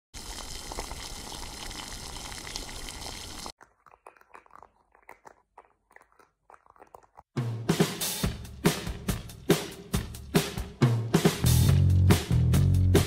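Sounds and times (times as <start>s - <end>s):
sauce bubbling in a pan: 0.2s - 5.1s.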